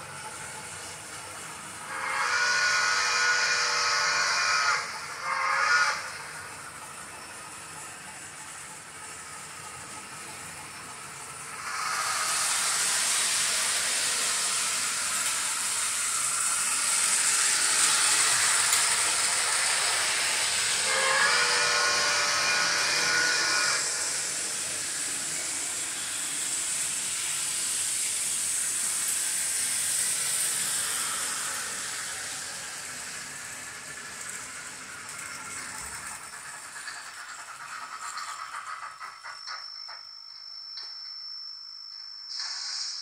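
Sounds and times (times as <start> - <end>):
loud steam hiss: 0.0 - 39.6, 42.2 - 43.0
steam whistle blowing: 1.8 - 6.4, 17.2 - 24.3.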